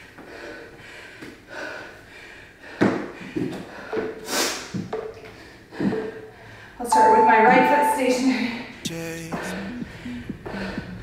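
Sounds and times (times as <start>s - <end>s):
hard rhythmic breathing: 8.8s - 11.0s.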